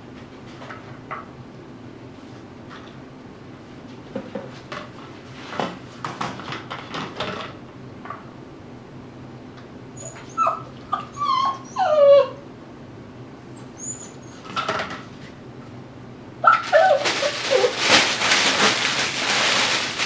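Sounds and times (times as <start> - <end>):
puppy whimpering: 10.0 - 12.5, 13.5 - 14.6, 16.4 - 17.8.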